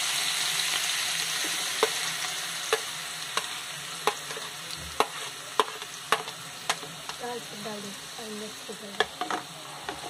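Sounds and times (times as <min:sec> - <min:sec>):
onions sizzling in hot oil: 0:00.0 - 0:10.0.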